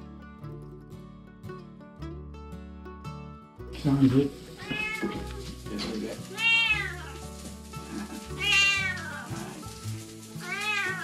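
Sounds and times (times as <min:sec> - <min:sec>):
cat meowing: 0:04.6 - 0:05.5, 0:06.3 - 0:07.2, 0:08.3 - 0:09.4, 0:10.4 - 0:11.0.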